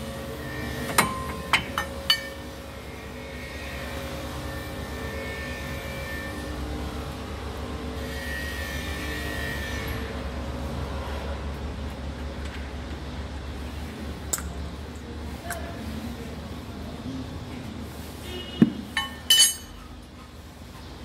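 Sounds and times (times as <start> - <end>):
spanner clinking on metal: 1.0 - 2.4, 19.0 - 19.8.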